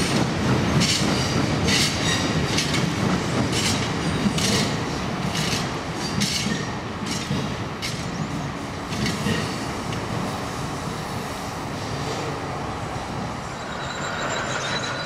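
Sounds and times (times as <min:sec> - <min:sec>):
train wheels rumbling on rails: 0:00.0 - 0:15.0
high-pitched wheel squeaks: 0:13.5 - 0:15.0.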